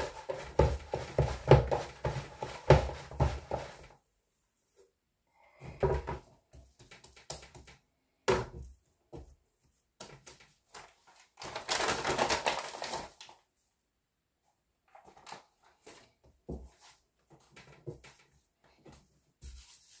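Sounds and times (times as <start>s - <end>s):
dough slapping against bowl: 0.0s - 3.9s
paper bag rustling: 10.8s - 13.4s.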